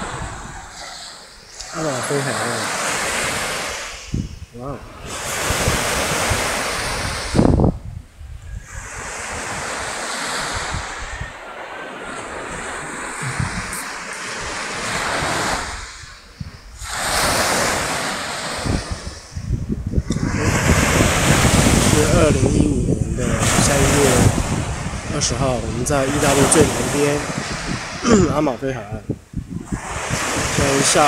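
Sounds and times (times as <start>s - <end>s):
waves washing up pebble beach: 0.0s - 7.7s, 8.6s - 28.8s, 29.6s - 31.0s
wind buffeting microphone: 0.0s - 31.0s.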